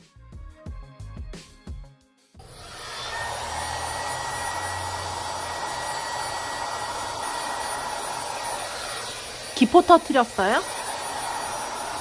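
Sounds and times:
heat gun blowing air: 2.4s - 12.0s.

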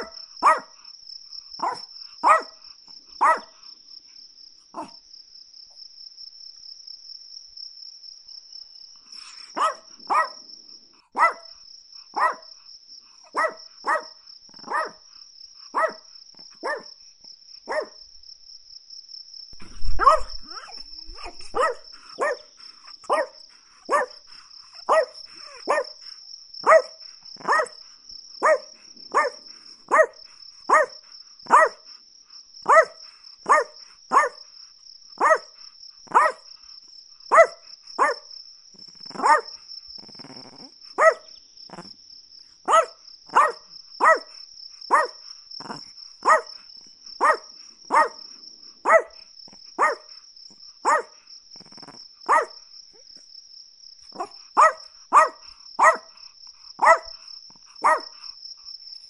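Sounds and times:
small dog barking: 0.0s - 0.8s, 1.6s - 2.6s, 3.2s - 3.6s, 4.7s - 5.0s, 9.2s - 10.5s, 11.1s - 12.6s, 13.2s - 15.1s, 15.7s - 17.0s, 17.6s - 18.0s, 19.6s - 31.9s, 32.6s - 34.5s, 35.2s - 36.5s, 37.3s - 38.3s, 38.9s - 41.9s, 42.6s - 46.6s, 47.2s - 50.2s, 50.8s - 53.1s, 54.1s - 56.2s, 56.8s - 58.2s.

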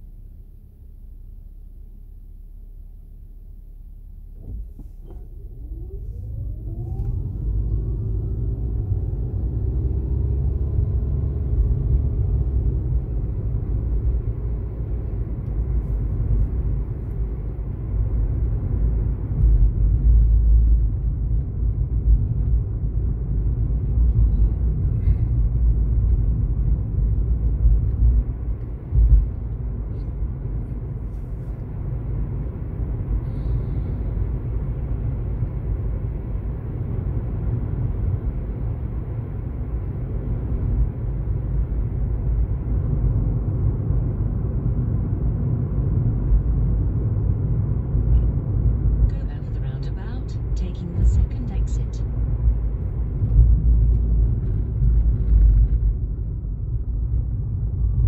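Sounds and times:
engine and road rumble: 0.0s - 58.0s
car engine revving: 4.3s - 39.3s.

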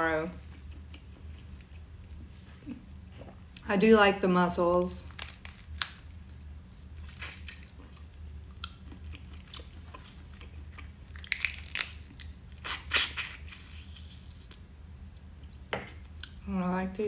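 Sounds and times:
crawfish shell cracking: 5.0s - 6.2s, 8.6s - 12.4s.

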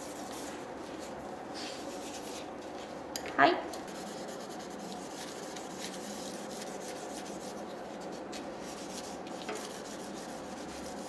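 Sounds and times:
sandpaper rubbing on chopstick: 3.9s - 7.6s, 8.6s - 11.0s.

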